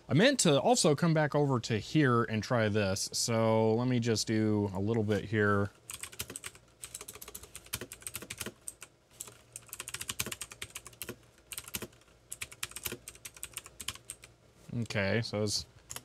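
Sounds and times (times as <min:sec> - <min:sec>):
typing on a computer keyboard: 0:05.9 - 0:14.3.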